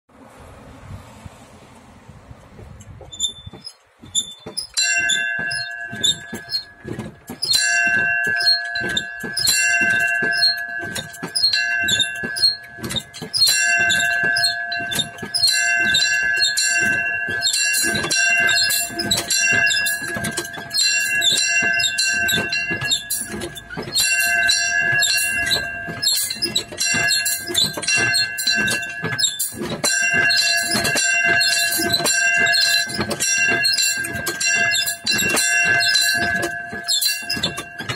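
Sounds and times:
small hand bell ringing: 4.7s - 12.8s.

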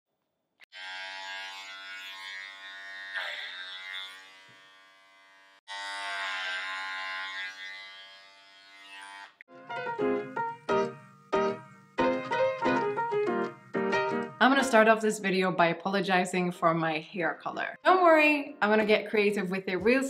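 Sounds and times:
electric hair clippers buzzing: 0.6s - 9.4s, 10.9s - 12.3s.

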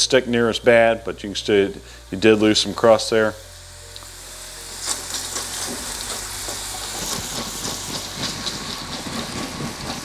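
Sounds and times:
burger patties sizzling on griddle: 0.4s - 10.0s
plastic scraper under patty: 4.8s - 10.0s.

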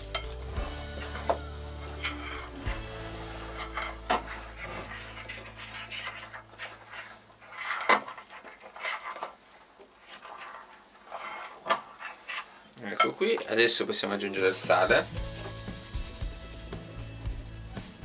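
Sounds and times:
fork scraping and clinking glass bowl: 0.0s - 9.2s.

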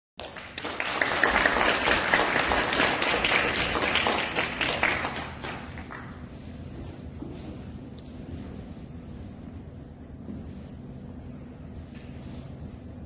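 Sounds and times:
audience applauding: 0.2s - 6.2s.

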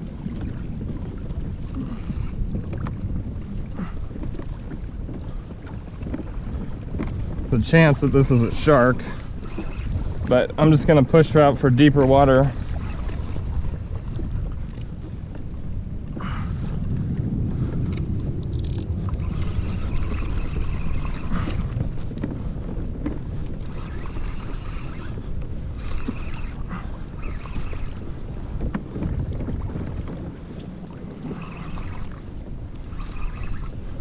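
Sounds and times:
wind rumble on microphone: 0.0s - 34.0s
fishing reel whirring: 9.4s - 10.0s, 18.5s - 21.8s, 23.6s - 28.1s, 31.2s - 32.2s, 32.8s - 33.8s.

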